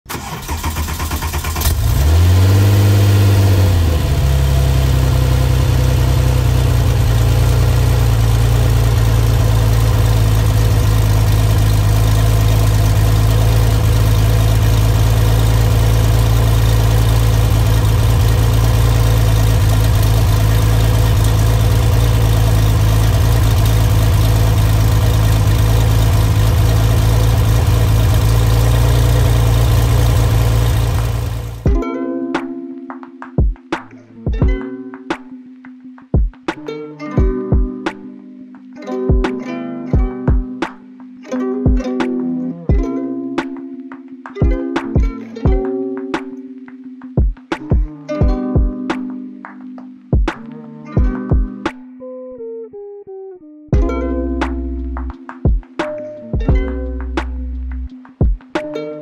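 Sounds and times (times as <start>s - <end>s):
car engine starting and idling: 0.0s - 31.8s.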